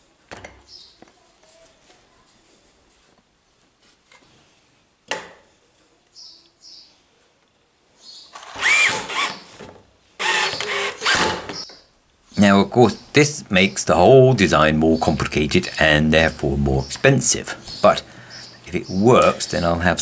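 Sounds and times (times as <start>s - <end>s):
cordless drill driving screws: 8.4s - 9.5s, 10.2s - 11.6s.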